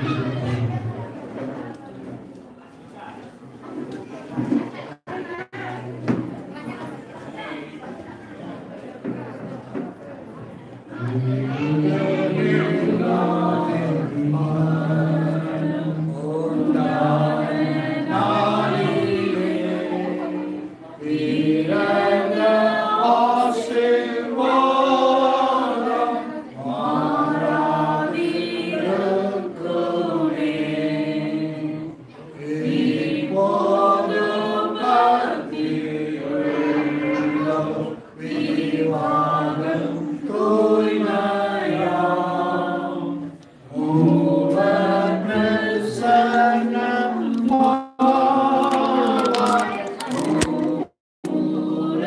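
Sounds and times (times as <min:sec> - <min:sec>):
congregation singing a hymn: 0:10.9 - 0:52.0.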